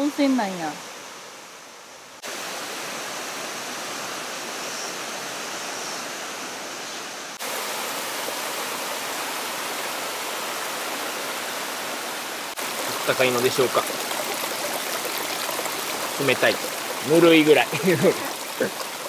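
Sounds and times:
water cascading down rock: 7.4 - 19.0.

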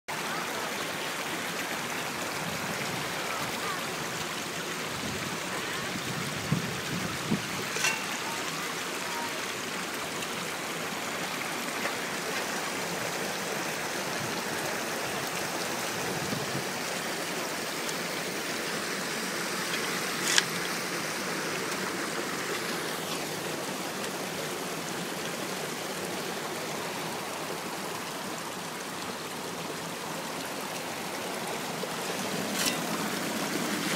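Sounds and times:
creek water rushing through sluices: 0.1 - 33.9.

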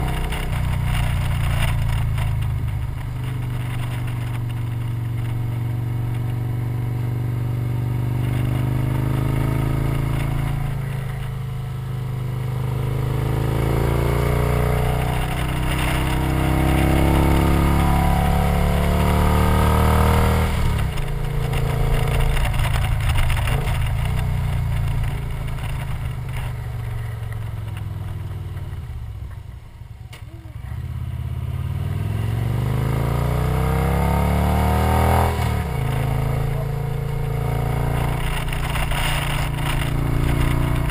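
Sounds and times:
wind noise: 0.0 - 29.7
motorcycle engine revving: 0.0 - 40.9.

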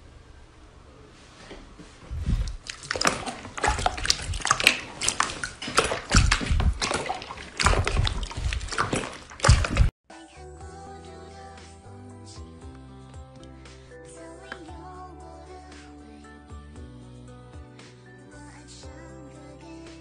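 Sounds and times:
slime squishing and popping: 2.3 - 9.9.

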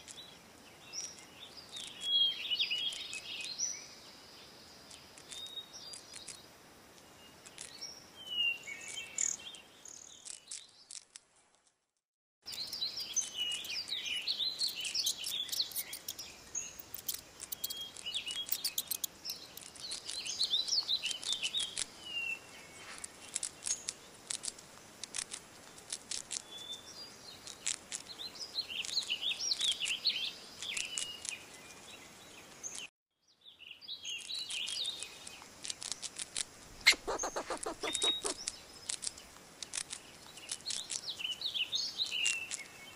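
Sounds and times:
high-pitched chirping calls: 14.6 - 21.8, 36.7 - 39.2
sharp clicks: 16.9 - 20.2, 35.6 - 41.1.

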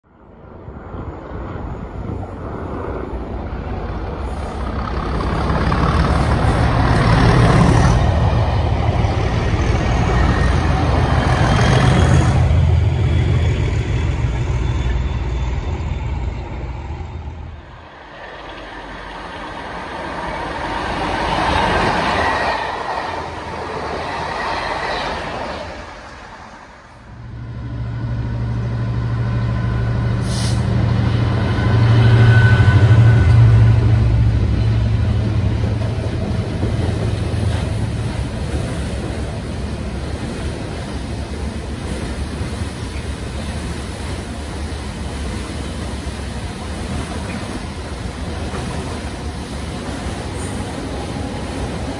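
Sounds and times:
diesel locomotive engine: 0.0 - 51.9
train approaching: 0.0 - 51.9
high squeal: 9.0 - 25.8, 28.9 - 34.8.

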